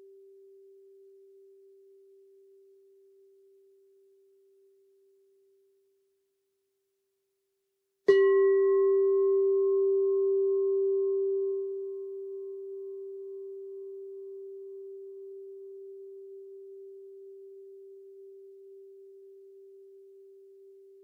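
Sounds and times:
singing bowl ringing: 8.1 - 21.0.

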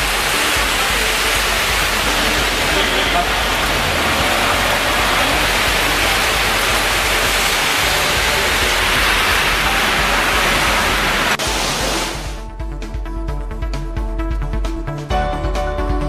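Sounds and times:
heavy rain pouring: 0.0 - 12.4.

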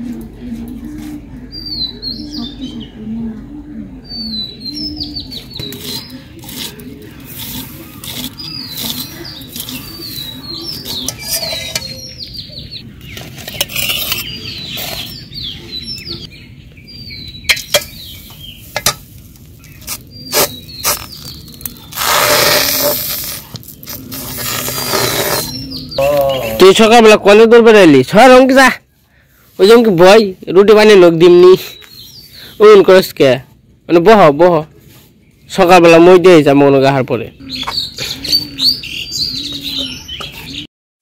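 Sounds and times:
small birds chirping: 0.4 - 40.7.

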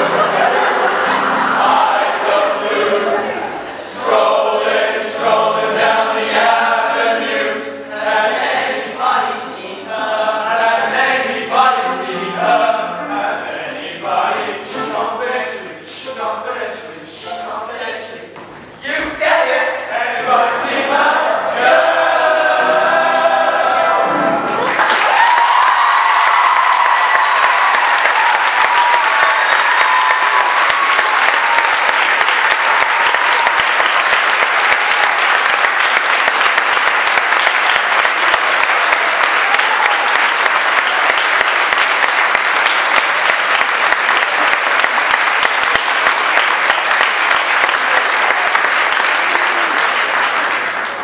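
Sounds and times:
audience applauding: 24.4 - 51.0.

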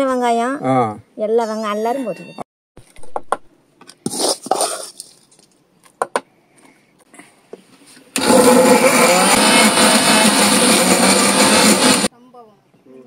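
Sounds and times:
metal spoon scraping metal bowl: 4.0 - 5.2
electric mixer grinder running: 8.2 - 12.1.

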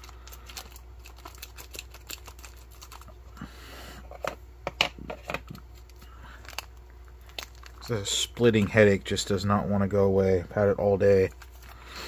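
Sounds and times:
plastic packet rustling: 0.0 - 3.3, 5.7 - 8.8, 11.0 - 12.0
steady low hum: 0.0 - 12.0.

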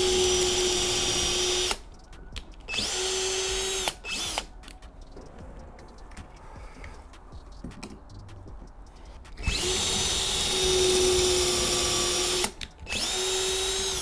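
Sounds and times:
cordless drill boring: 0.0 - 1.8, 2.7 - 4.5, 9.4 - 14.0.

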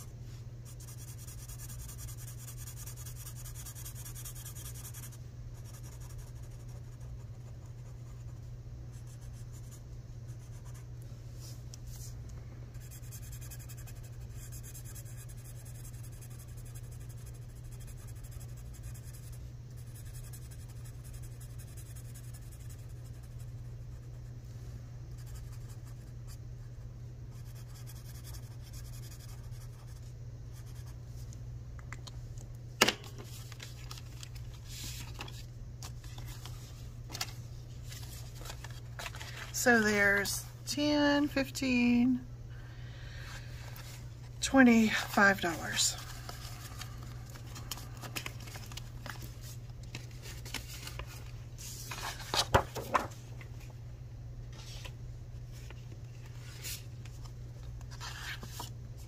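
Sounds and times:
steady low hum: 0.0 - 59.0
marker scratching on paper: 0.6 - 8.4, 12.8 - 24.2, 27.3 - 30.0.

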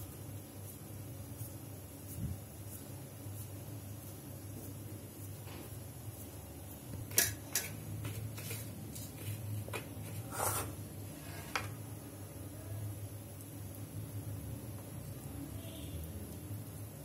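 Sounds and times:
gritty scrape in breadcrumbs: 7.6 - 11.6.

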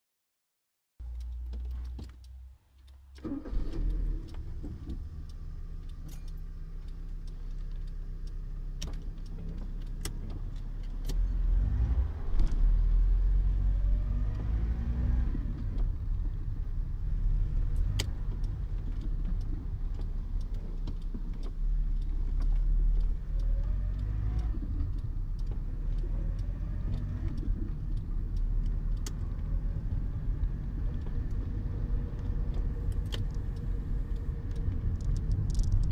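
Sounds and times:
car engine from inside cabin: 1.0 - 35.9
sharp clicks: 17.5 - 35.9.

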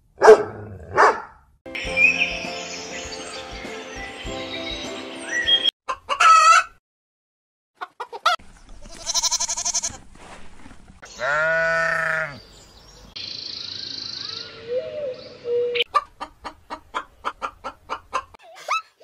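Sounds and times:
chickens squawking: 5.9 - 6.8, 7.8 - 9.6, 14.9 - 19.0
goat bleating: 8.8 - 10.0, 11.1 - 12.4
sheep bleating: 8.8 - 10.0, 11.1 - 12.4.

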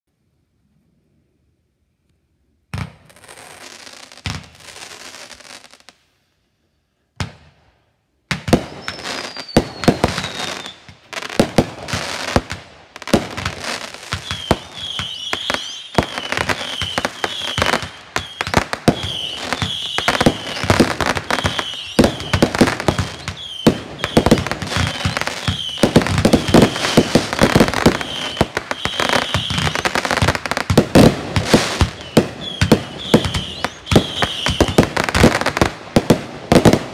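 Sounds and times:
fireworks bangs and crackling: 2.7 - 6.0, 7.1 - 36.9
falling firework whistle: 8.5 - 36.9
short high whistles: 8.8 - 10.8.

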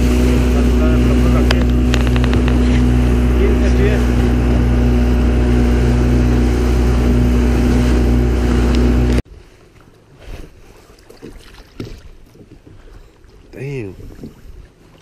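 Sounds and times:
boat motor running: 0.0 - 9.2
quiet water: 0.0 - 15.0
rush of wake and spray: 0.0 - 15.0.

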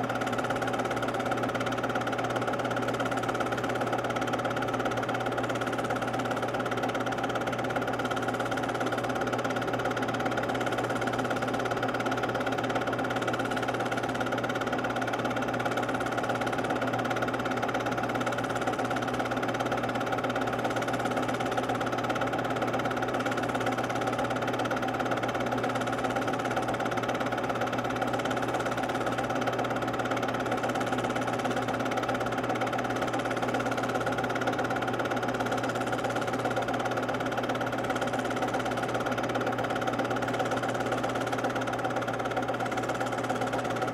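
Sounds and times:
film projector whirring: 0.0 - 43.9.

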